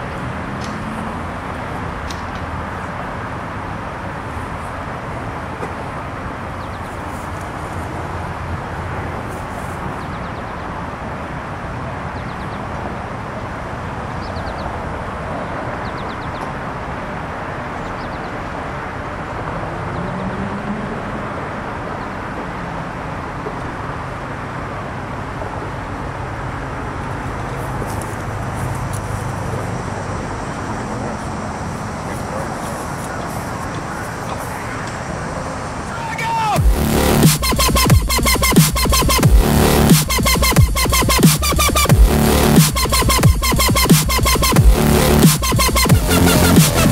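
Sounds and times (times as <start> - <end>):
outdoor traffic noise: 0.0 - 46.9
low engine tone: 36.6 - 46.9.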